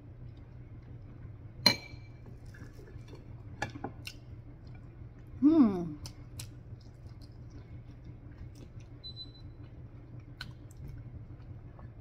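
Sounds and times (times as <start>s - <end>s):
low steady hum: 0.0s - 12.0s
person chewing: 6.0s - 9.0s, 9.6s - 11.9s.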